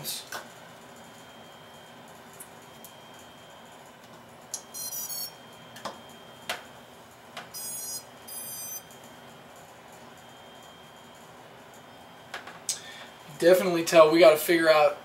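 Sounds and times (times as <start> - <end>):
high-pitched start-up beeps: 4.6 - 5.6, 7.6 - 8.9.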